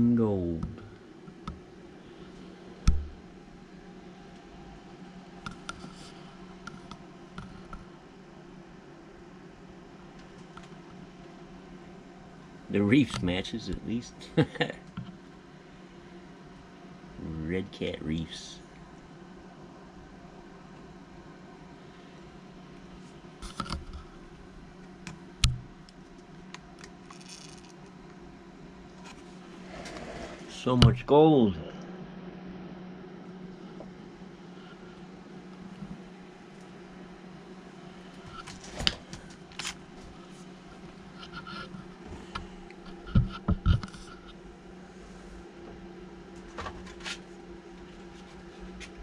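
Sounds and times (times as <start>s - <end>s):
steady low hum: 0.0s - 49.0s
small parts clicking and tapping: 25.0s - 28.0s.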